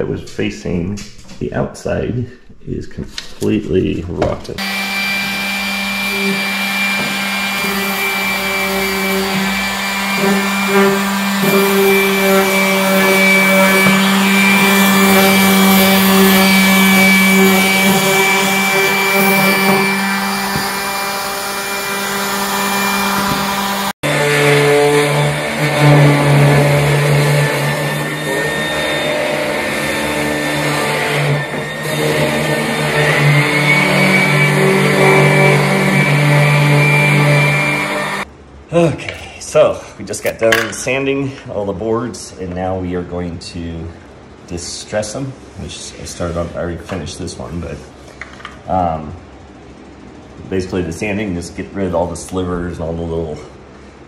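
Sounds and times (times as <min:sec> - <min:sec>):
orbital sander whining: 0:04.6 - 0:38.3.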